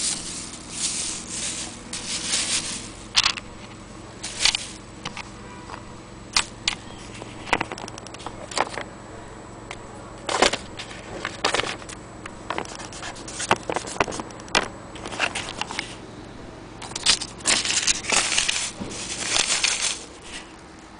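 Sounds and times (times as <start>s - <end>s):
rustling: 0.0s - 5.4s, 10.3s - 16.0s, 16.8s - 20.9s
handling clicks and knocks: 1.2s - 8.9s, 9.7s - 15.9s.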